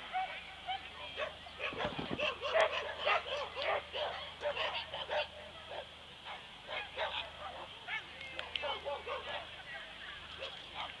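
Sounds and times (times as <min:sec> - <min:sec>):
dog barking: 0:01.2 - 0:08.0, 0:08.6 - 0:09.5.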